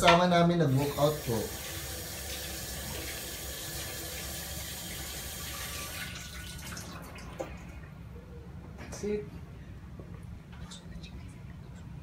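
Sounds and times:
tap water running into a steel sink: 0:00.8 - 0:07.5.

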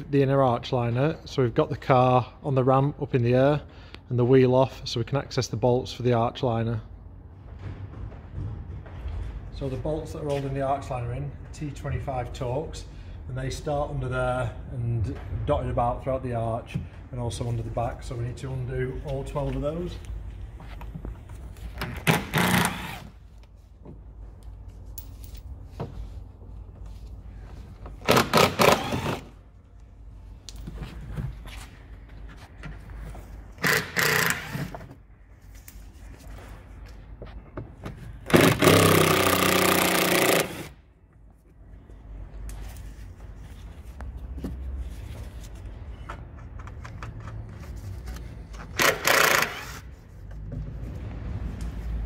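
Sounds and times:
cordless drill undoing screws: 0:21.8 - 0:23.2, 0:28.0 - 0:29.3, 0:33.6 - 0:34.8, 0:38.3 - 0:40.7, 0:48.8 - 0:49.8.

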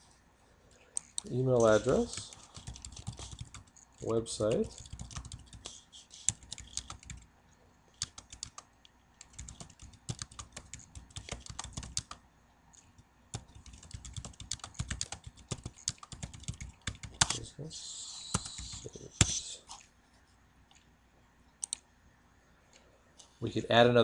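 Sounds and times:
typing on computer keyboard: 0:01.0 - 0:07.2, 0:08.0 - 0:12.2, 0:12.8 - 0:17.4.

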